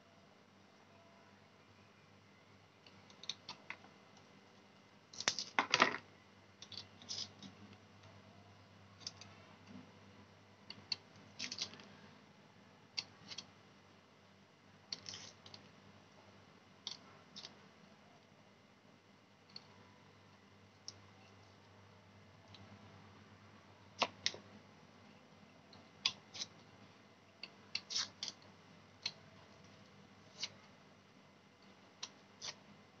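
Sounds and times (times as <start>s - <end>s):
knife scraping shallot skin: 27.7s - 28.4s, 32.4s - 32.6s.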